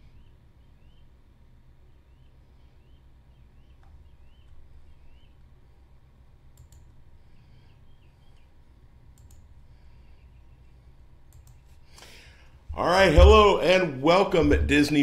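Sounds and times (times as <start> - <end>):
low steady hum: 0.0 - 15.0
faint sharp clicks: 6.5 - 7.0, 9.1 - 9.5, 11.3 - 12.1.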